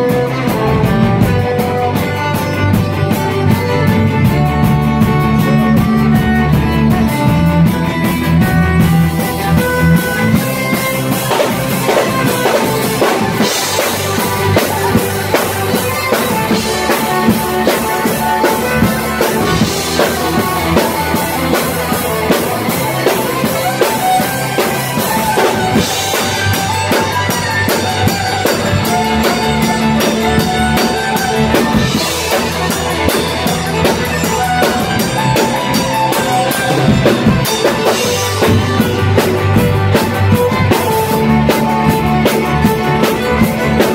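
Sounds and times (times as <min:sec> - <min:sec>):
drum kit: 0:00.0 - 0:43.9
electric guitar and bass: 0:00.0 - 0:43.9
fiddle melody: 0:00.0 - 0:43.9.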